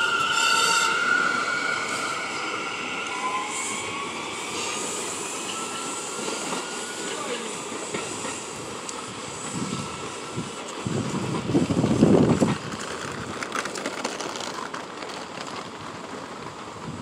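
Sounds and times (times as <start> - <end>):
subway train pulling away: 0.0 - 17.0
wind gusts on microphone: 8.5 - 13.4.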